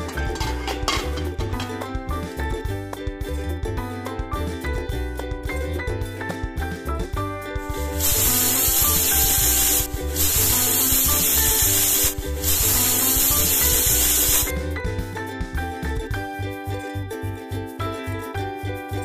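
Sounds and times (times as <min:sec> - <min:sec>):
background music: 0:00.0 - 0:19.0
pressure cooker whistling: 0:08.0 - 0:14.5.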